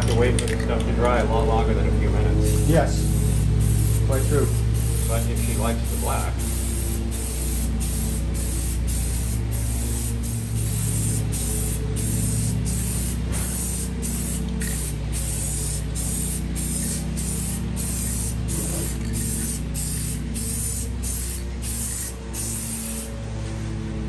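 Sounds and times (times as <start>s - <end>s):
steady low hum: 0.0s - 24.0s
spray-paint can hissing: 2.5s - 23.1s.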